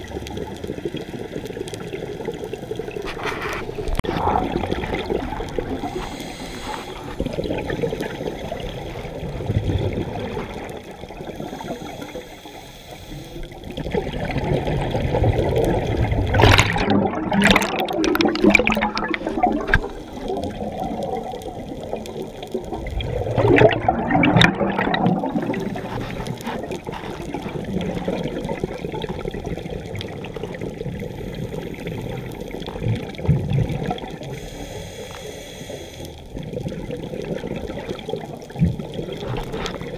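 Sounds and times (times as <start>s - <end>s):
air bubbling from regulator: 0.0s - 39.9s
underwater rushing: 0.0s - 39.9s.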